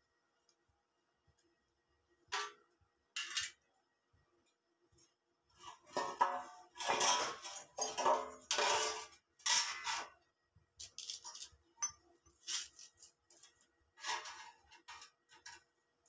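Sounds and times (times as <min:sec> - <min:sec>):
steel parts clanking and scraping: 0:05.6 - 0:10.2, 0:10.8 - 0:15.7.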